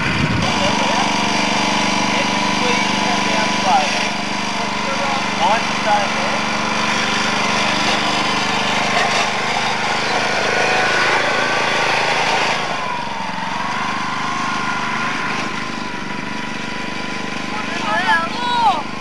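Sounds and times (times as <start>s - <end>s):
small petrol engine running: 0.0s - 19.0s.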